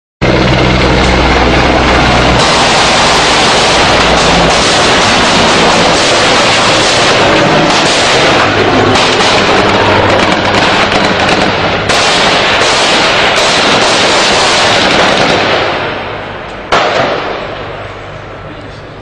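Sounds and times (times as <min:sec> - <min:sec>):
heavy overlapping gunfire: 0:00.2 - 0:17.9
sharp loud gunshot: 0:02.4 - 0:16.0, 0:16.7 - 0:17.6.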